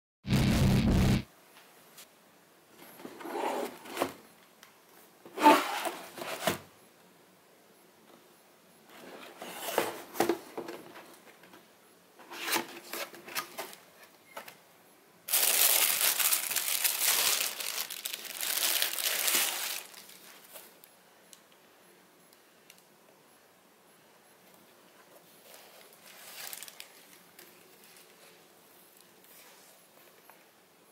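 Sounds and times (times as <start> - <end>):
cardboard sliding and scraping: 2.9 - 4.2
tissue paper rustling: 15.3 - 20.6, 25.5 - 27.2.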